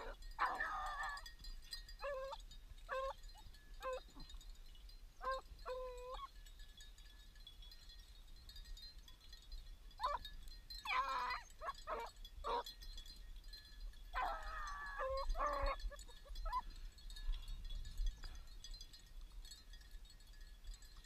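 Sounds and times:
dogs baying and yelping: 0.0s - 4.4s, 5.2s - 6.3s, 10.0s - 12.7s, 14.1s - 16.8s.

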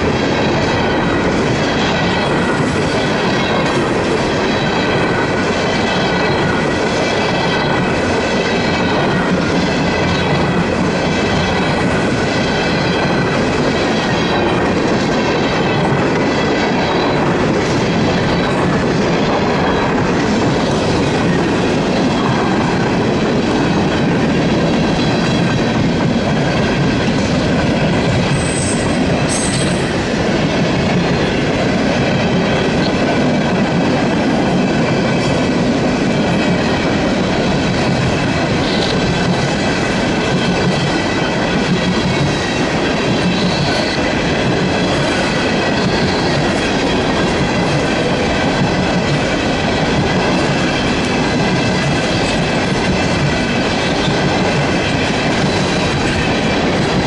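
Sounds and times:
freight train rumbling past: 0.0s - 57.0s.

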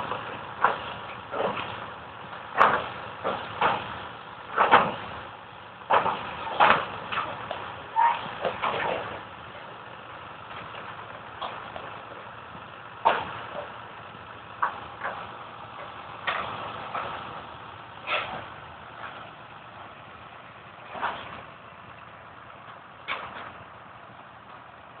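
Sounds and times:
sharp knocks and cracks: 0.0s - 5.2s, 5.9s - 9.3s, 10.4s - 12.3s, 13.0s - 13.8s, 14.6s - 17.4s, 18.0s - 19.4s, 20.8s - 21.6s, 22.6s - 23.6s
fire engine motor running: 0.0s - 25.0s.

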